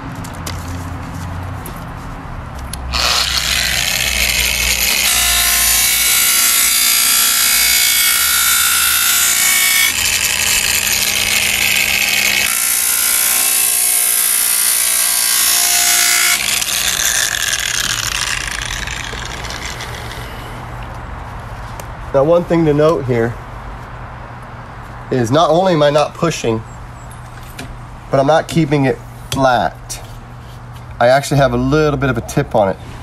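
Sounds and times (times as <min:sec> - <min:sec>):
angle grinder polishing tile: 0:02.9 - 0:20.4.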